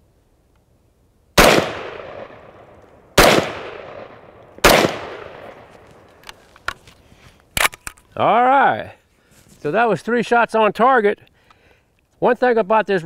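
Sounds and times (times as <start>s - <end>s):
rifle shots with echo: 1.4s - 6.2s.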